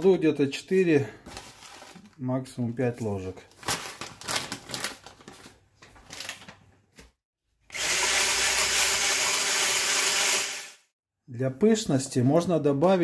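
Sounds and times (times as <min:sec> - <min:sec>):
immersion blender running: 0:07.7 - 0:10.8.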